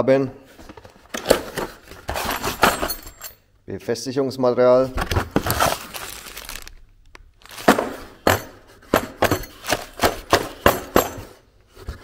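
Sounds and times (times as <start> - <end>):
metal bolts clinking: 2.4 - 3.4.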